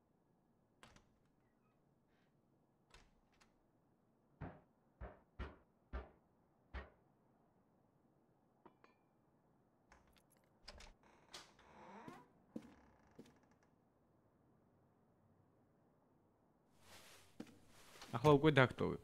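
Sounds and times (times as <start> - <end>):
knocks at wooden door: 4.4 - 7.0.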